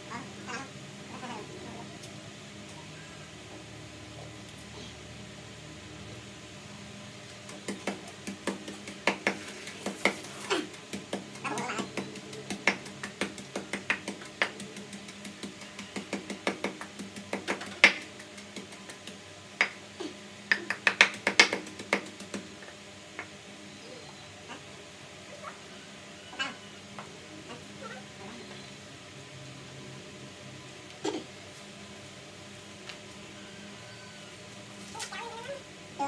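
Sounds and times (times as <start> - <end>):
pestle pounding in wooden mortar: 7.5 - 19.8, 20.5 - 22.5.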